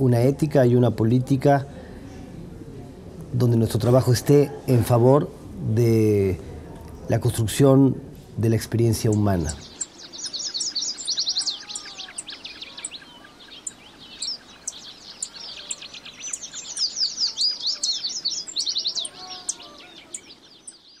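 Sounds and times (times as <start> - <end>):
birds chirping in chorus: 8.4 - 21.0
low drawn-out bird calls: 8.9 - 21.0.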